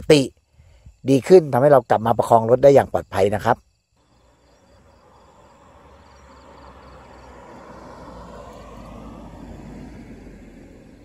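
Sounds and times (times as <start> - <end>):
tyre noise on road: 4.0 - 11.0
vehicle engine approaching: 4.0 - 11.0.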